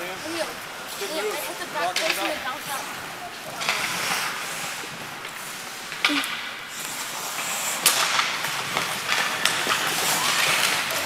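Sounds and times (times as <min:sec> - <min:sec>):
steady hiss: 0:00.0 - 0:11.0
skates scraping ice: 0:00.2 - 0:11.0
hockey sticks and puck clacking: 0:01.8 - 0:02.9, 0:03.5 - 0:11.0.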